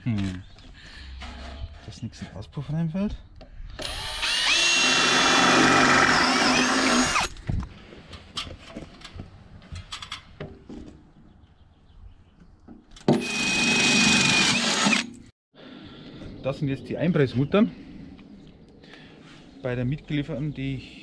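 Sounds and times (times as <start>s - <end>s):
power drill boring sheet metal: 3.8s - 7.3s, 13.1s - 15.1s.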